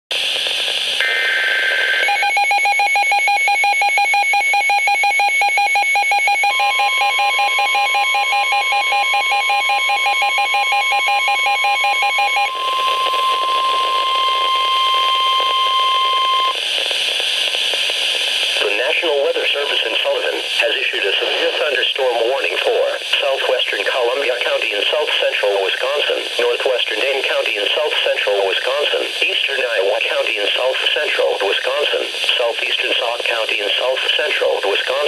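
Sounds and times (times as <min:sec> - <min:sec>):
radio static hiss: 0:00.1 - 0:02.1, 0:12.5 - 0:35.0
steady warning tone: 0:01.0 - 0:16.6
rapid beeping alarm: 0:02.0 - 0:16.6.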